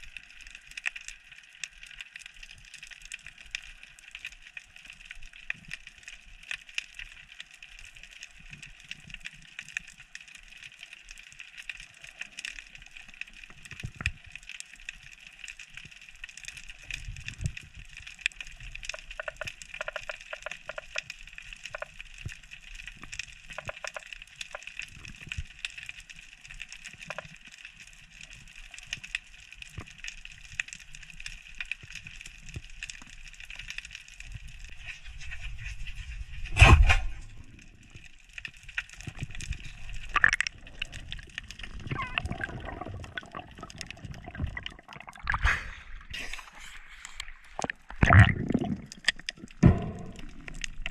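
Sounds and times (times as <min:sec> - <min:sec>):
underwater reef crackle: 0:00.0 - 0:50.9
low thumps: 0:49.5 - 0:50.9.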